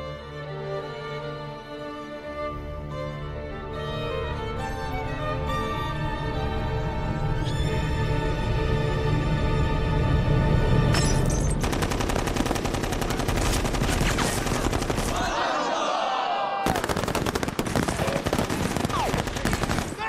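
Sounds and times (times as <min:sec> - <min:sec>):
film score music: 0:00.0 - 0:16.0
rapid automatic gunfire: 0:11.6 - 0:15.4, 0:16.6 - 0:20.0
voices: 0:15.0 - 0:16.8.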